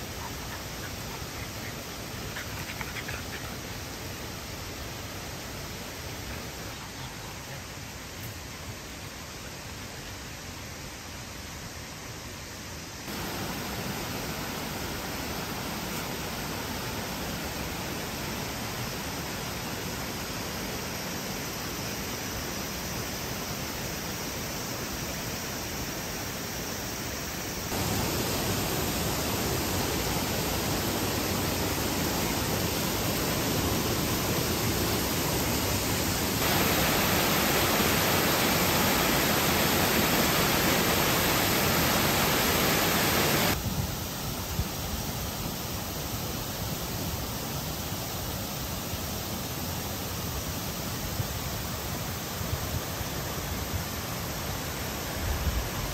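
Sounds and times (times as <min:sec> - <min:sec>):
stream water rushing: 0:13.1 - 0:55.9.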